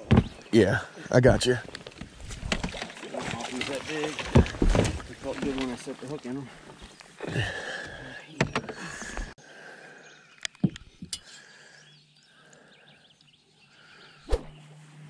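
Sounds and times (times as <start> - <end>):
knocks and thumps on boat deck: 0.0 - 0.4.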